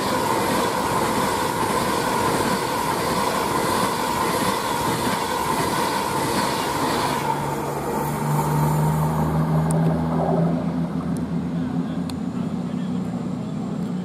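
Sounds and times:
train wheels rushing on rail: 0.0s - 10.0s
high ringing rail tone: 0.0s - 12.5s
low engine hum: 7.2s - 14.0s.

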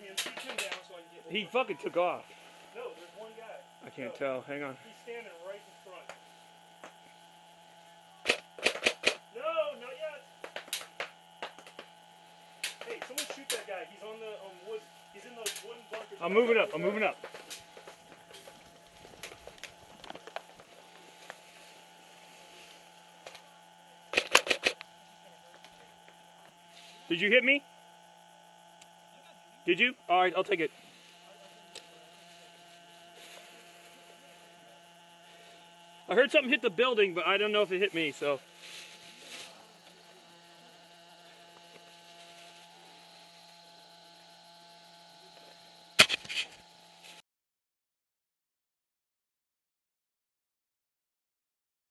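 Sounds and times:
faint steady hum: 0.0s - 47.2s
airsoft rifle cracks: 8.3s - 9.2s, 24.1s - 24.8s
rustling through tall grass: 17.2s - 24.6s, 30.7s - 35.7s, 37.7s - 43.4s
cloth rubbing on microphone: 37.9s - 40.4s, 41.2s - 43.3s.

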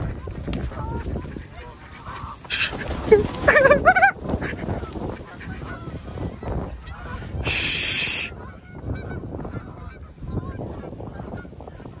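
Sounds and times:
geese honking: 0.0s - 12.0s
rush of hiss-like noise: 7.5s - 8.3s.

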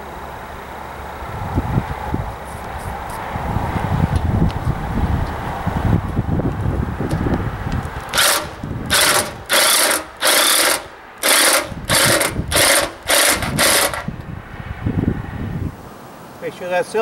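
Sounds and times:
wind rumbling on microphone: 1.1s - 9.7s, 11.5s - 16.0s
drill bursts: 8.1s - 14.2s.

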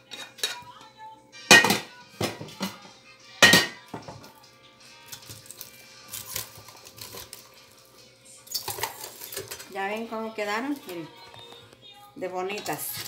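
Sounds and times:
faint music: 0.0s - 13.0s
popcorn rustling in a bowl: 5.1s - 11.6s, 12.6s - 13.0s.

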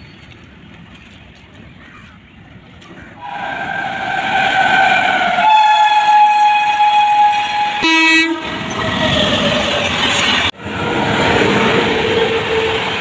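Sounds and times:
passing train rumble: 0.0s - 13.0s
lower-pitched horn blast: 3.2s - 9.0s
locomotive horn blast: 3.2s - 9.9s.

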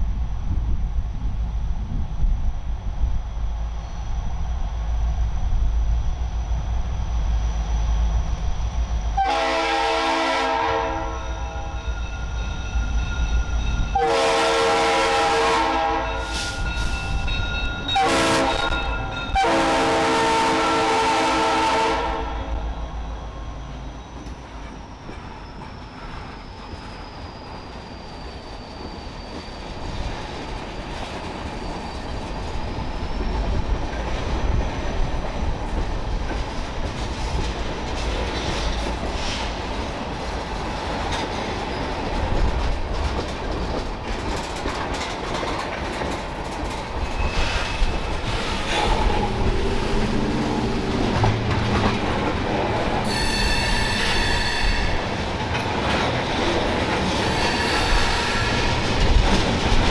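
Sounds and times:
locomotive air horn blasts: 9.2s - 11.7s, 13.9s - 16.6s, 17.9s - 22.6s, 53.1s - 55.0s.

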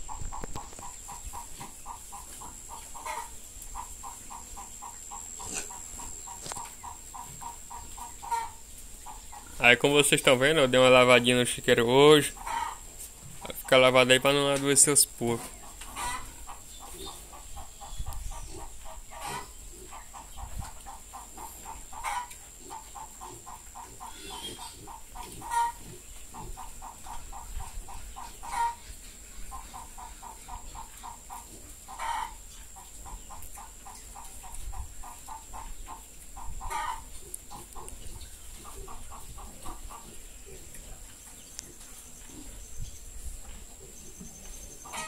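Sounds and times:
chicken clucking: 0.0s - 42.7s, 43.4s - 45.0s.

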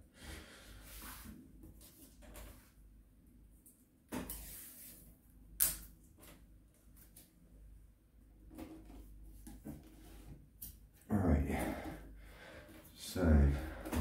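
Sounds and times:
tape snapping: 5.6s - 5.9s.

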